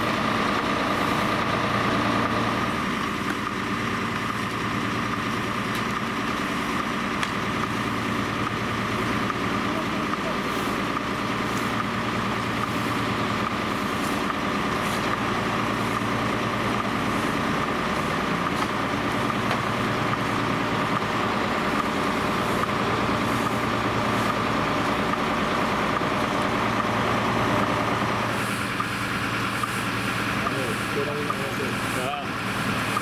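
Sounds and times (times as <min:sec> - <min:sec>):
brooms sweeping on asphalt: 0:00.0 - 0:05.1, 0:10.0 - 0:33.0
heavy diesel vehicle idling: 0:00.0 - 0:33.0.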